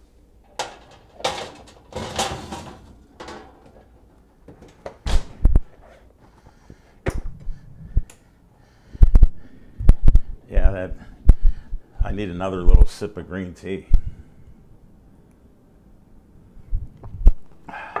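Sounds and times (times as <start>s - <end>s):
oven rack scraping: 0.4s - 4.2s
oven rack and door clunks: 0.5s - 5.5s.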